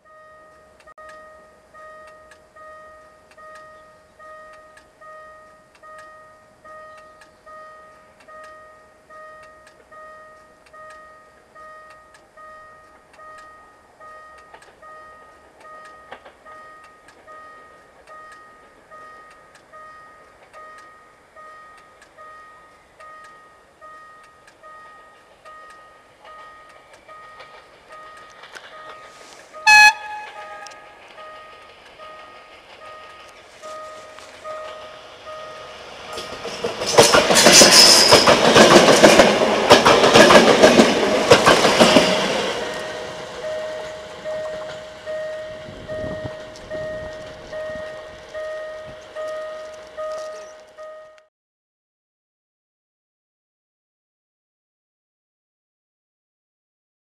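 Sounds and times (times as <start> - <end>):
level crossing warning bell: 0.0 - 51.3
train rumble: 0.0 - 51.3
locomotive horn blast: 29.1 - 31.0.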